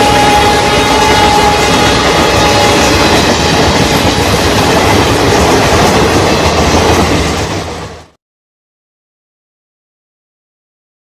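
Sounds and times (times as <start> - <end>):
faint train horn: 0.0 - 3.6
train wheel and rail noise: 0.0 - 8.2.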